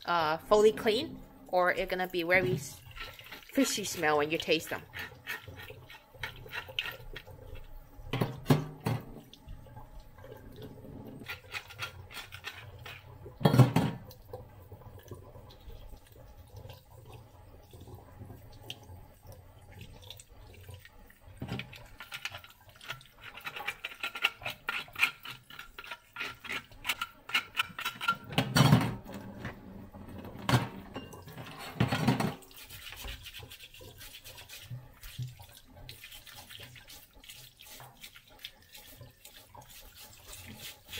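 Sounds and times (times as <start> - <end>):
tap water running into sink: 0.7 - 40.9
hands scrubbing fish: 1.9 - 7.8, 10.2 - 13.3, 21.6 - 28.1, 32.4 - 40.9.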